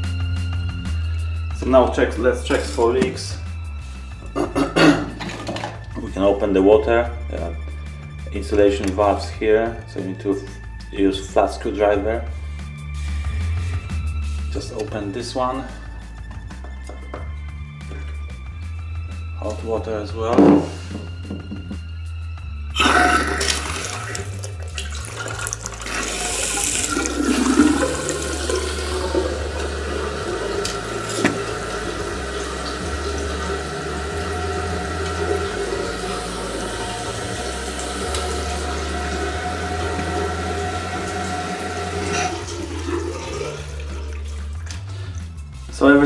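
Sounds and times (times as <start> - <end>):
tap water running into basin: 22.8 - 45.4.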